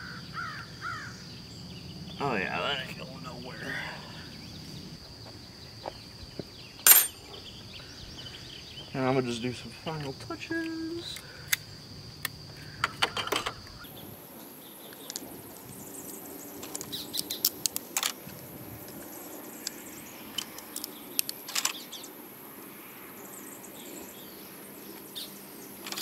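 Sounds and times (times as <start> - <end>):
high-pitched background whine: 0.0 - 12.5.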